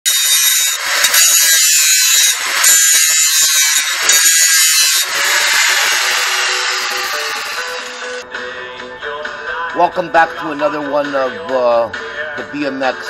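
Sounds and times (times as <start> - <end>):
angle grinder grinding metal: 0.0 - 8.2.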